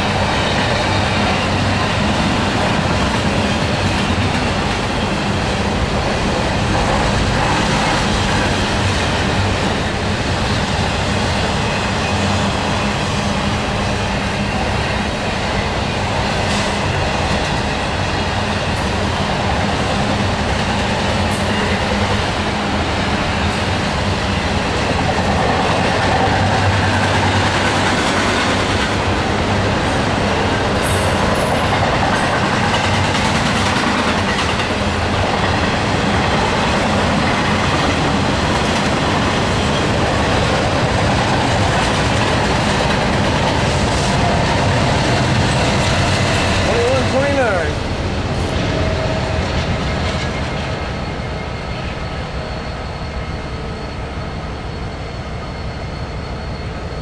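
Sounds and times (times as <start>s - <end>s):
train wheels on rails: 0.0s - 57.0s.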